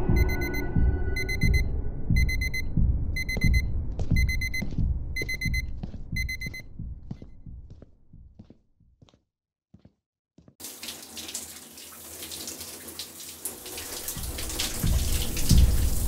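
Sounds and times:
electronic alarm beeping: 0:00.0 - 0:06.7
low rumble: 0:00.0 - 0:07.7.

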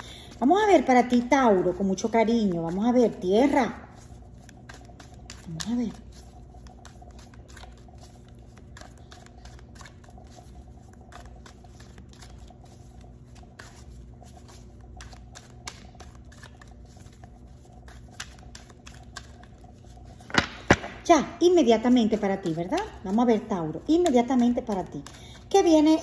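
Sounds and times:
cards being shuffled: 0:00.0 - 0:26.0.

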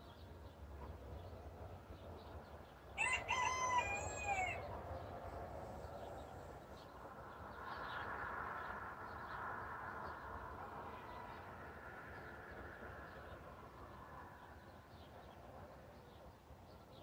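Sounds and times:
faint steady rushing: 0:00.3 - 0:17.0
rooster crowing: 0:03.0 - 0:04.7.

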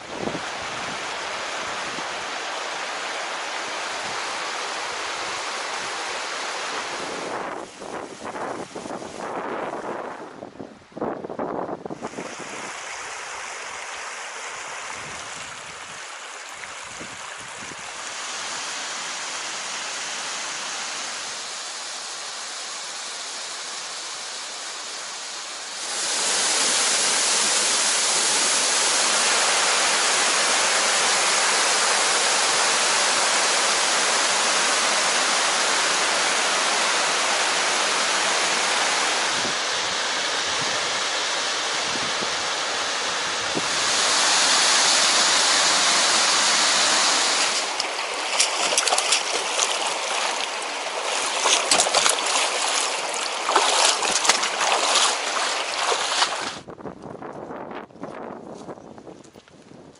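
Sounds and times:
creek water rushing: 0:00.0 - 0:10.2, 0:11.0 - 0:56.7
waterfall pouring over rock: 0:12.0 - 0:39.4, 0:43.6 - 0:56.6.

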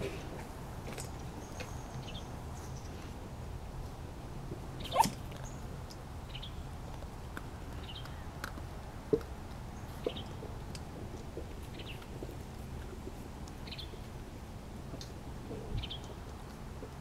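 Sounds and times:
puppy squeaks: 0:04.8 - 0:05.2
puppy yelping: 0:04.8 - 0:05.2.

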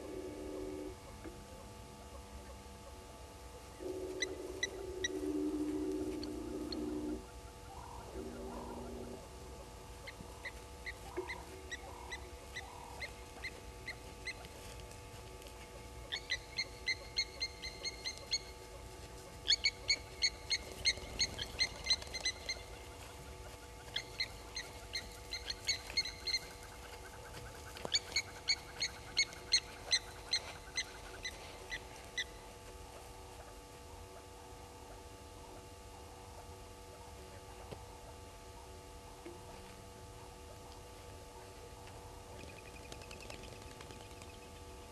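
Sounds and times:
lapwing alarm calls: 0:04.1 - 0:09.2, 0:10.0 - 0:14.5, 0:16.0 - 0:18.8, 0:19.4 - 0:32.4.

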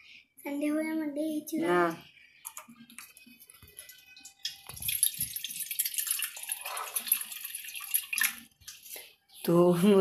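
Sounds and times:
water running and splashing: 0:04.4 - 0:08.8.

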